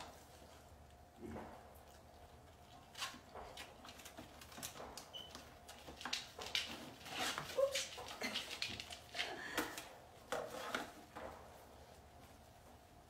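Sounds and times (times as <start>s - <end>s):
puppies scrambling on plastic: 2.4s - 11.6s.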